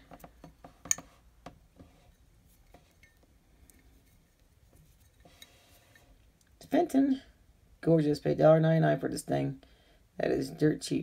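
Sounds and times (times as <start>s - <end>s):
soft handling noise: 0.0s - 6.8s.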